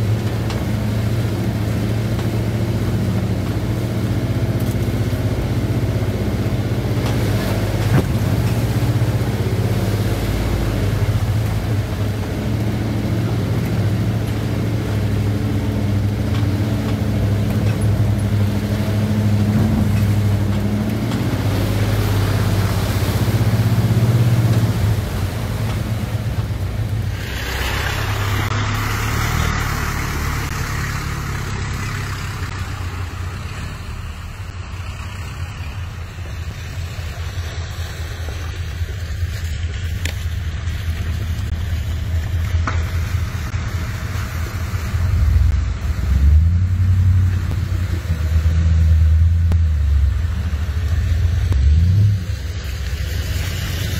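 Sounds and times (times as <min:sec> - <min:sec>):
engine revving: 0:00.0 - 0:38.1, 0:42.6 - 0:53.9
engine running inside cab: 0:00.0 - 0:53.9
trucks driving through mud: 0:00.0 - 0:53.9.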